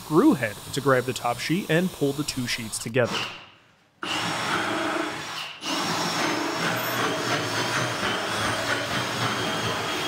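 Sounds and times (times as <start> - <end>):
power drill boring plywood: 2.9 - 10.0.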